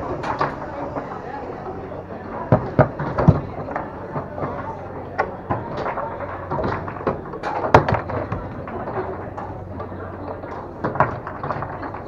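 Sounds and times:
foosball clacks: 2.5s - 12.0s.

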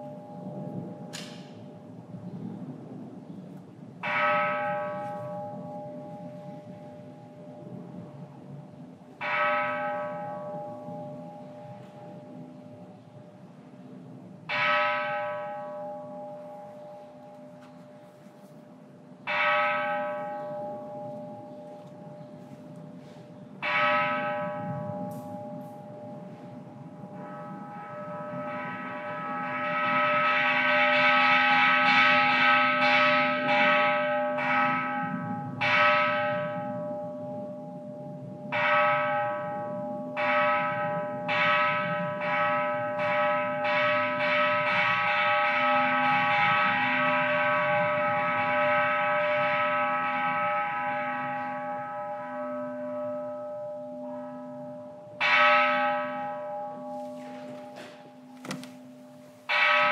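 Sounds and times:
temple bell ringing: 0.0s - 1.9s, 4.0s - 8.0s, 9.2s - 13.0s, 14.5s - 59.9s.

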